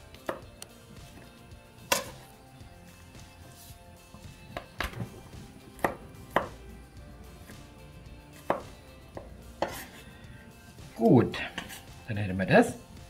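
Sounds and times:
knife chopping on cutting board: 0:00.2 - 0:02.3, 0:04.5 - 0:05.1, 0:05.8 - 0:06.6, 0:08.3 - 0:10.0, 0:11.5 - 0:11.9.

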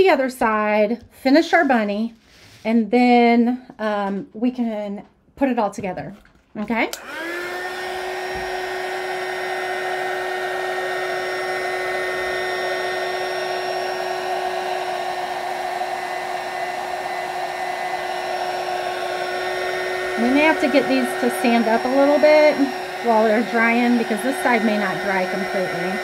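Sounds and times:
hot-air dryer blowing: 0:06.9 - 0:26.0.

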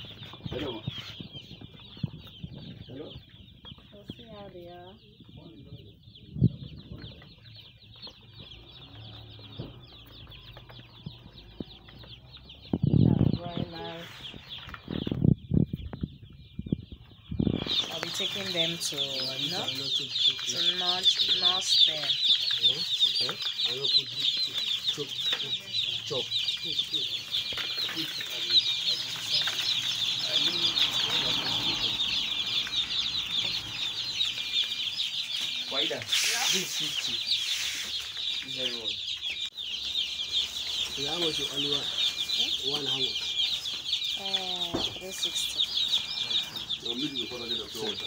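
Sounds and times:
chicks peeping: 0:00.0 - 0:48.0.

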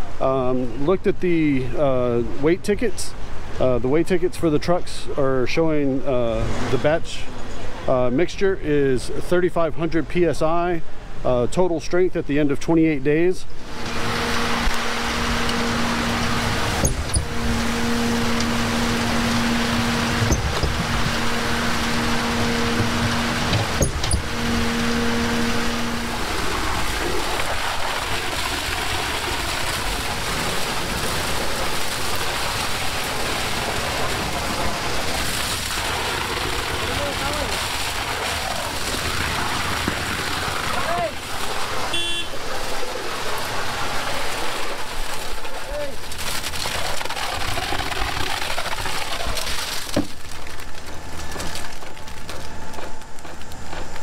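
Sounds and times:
rushing machinery and flowing concrete: 0:12.7 - 0:54.0
steady hum: 0:13.5 - 0:31.9
low steady drone: 0:13.6 - 0:27.8.

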